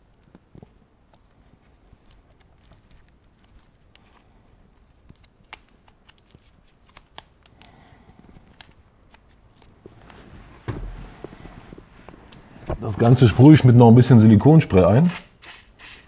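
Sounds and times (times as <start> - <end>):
tape rustling: 0.0 - 13.6.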